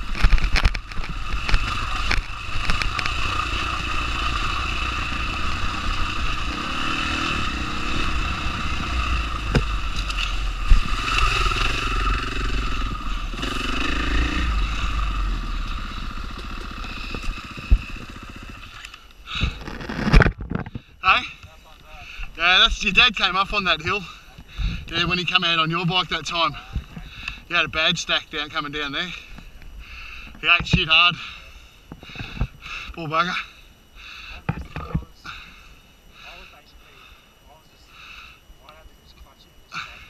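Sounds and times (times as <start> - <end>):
bike clattering over ruts: 0.0 - 20.9
dirt bike engine under load: 0.0 - 20.9.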